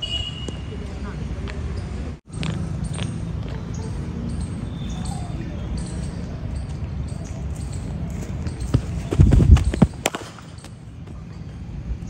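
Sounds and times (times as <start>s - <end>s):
running footsteps thudding: 8.1s - 10.7s
cricket bat striking ball: 8.5s - 11.5s.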